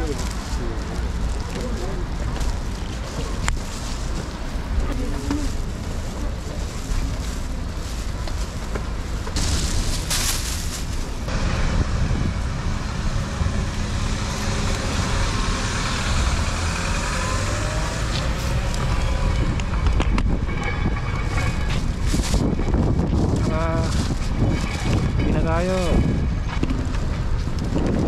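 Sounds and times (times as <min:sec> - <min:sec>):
plastic bag rustling: 0:00.0 - 0:11.3, 0:21.2 - 0:26.0
road traffic: 0:00.0 - 0:28.0
wind rumbling on microphone: 0:00.0 - 0:28.0.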